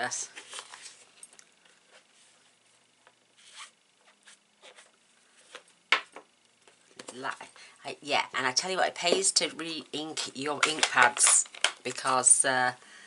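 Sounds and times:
soft rustles and scrapes: 0:00.2 - 0:05.8.

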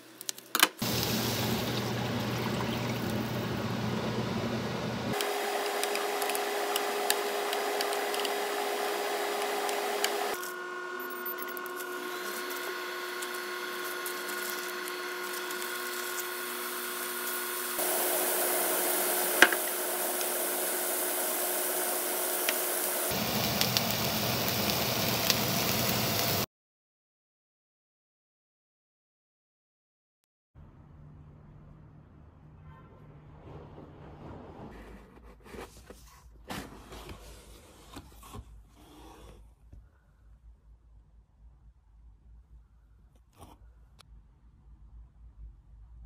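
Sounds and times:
appliance hum with whine: 0:00.8 - 0:26.5
meat sizzling in a pan: 0:13.6 - 0:26.5.

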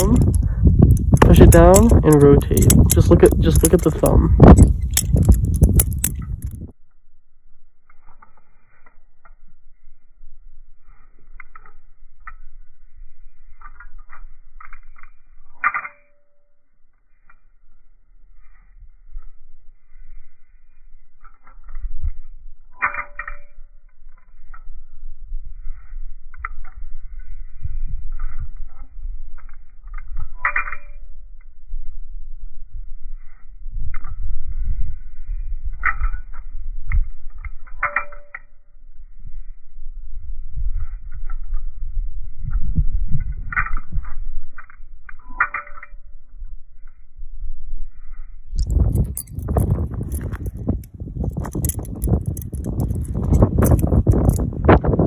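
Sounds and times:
knife handles clacking together: 0:00.0 - 0:06.7, 0:48.6 - 0:54.6
butterfly knife clicking and rattling: 0:00.0 - 0:06.8, 0:07.9 - 0:09.5, 0:11.2 - 0:17.5, 0:21.1 - 0:31.6, 0:33.8 - 0:34.8, 0:35.6 - 0:38.8, 0:42.4 - 0:47.0, 0:48.6 - 0:55.0
wind buffeting microphone: 0:00.0 - 0:06.8, 0:39.0 - 0:45.0, 0:47.7 - 0:55.0
low rumble: 0:00.0 - 0:15.6, 0:16.4 - 0:55.0.

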